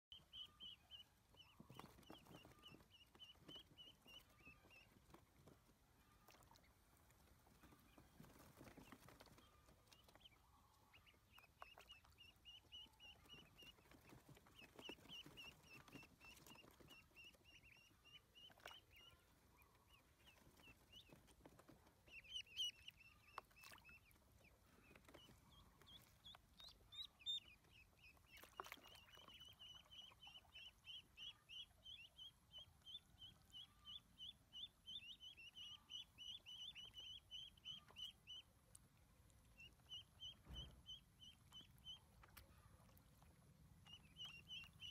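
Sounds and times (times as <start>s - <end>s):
ducklings peeping: 0.1s - 44.9s
light water splashes: 0.2s - 34.3s, 35.2s - 44.9s.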